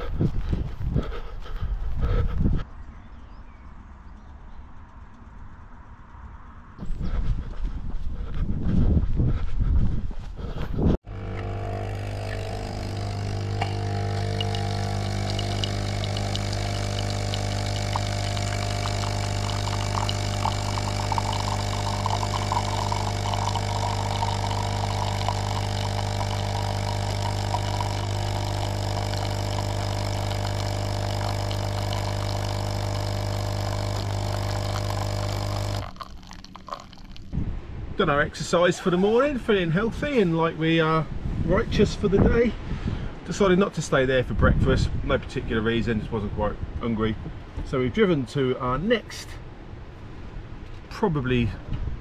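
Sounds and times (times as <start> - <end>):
coffee machine pump humming: 11.0 - 37.3
coffee streaming into mug: 11.1 - 37.3.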